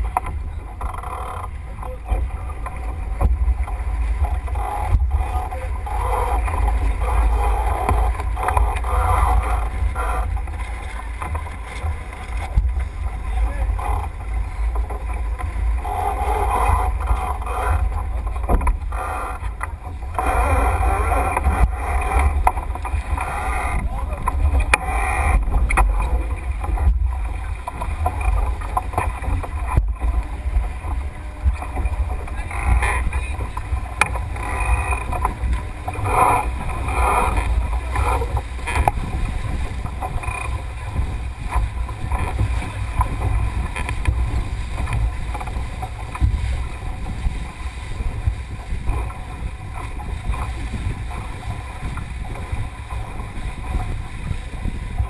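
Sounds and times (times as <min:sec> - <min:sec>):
water rushing past boat hull: 0:00.0 - 0:55.0
wind buffeting microphone: 0:00.0 - 0:55.0
crew voices: 0:04.3 - 0:15.1, 0:15.8 - 0:18.0, 0:18.6 - 0:26.7, 0:31.0 - 0:39.0.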